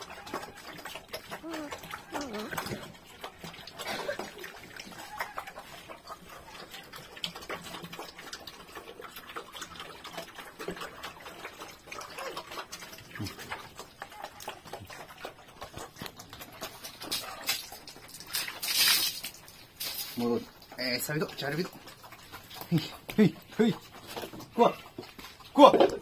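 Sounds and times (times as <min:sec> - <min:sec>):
pig grunting: 0:00.0 - 0:07.0, 0:10.7 - 0:17.8, 0:20.8 - 0:25.7
pigs chewing and smacking: 0:00.0 - 0:26.0
water splashing: 0:00.0 - 0:26.0.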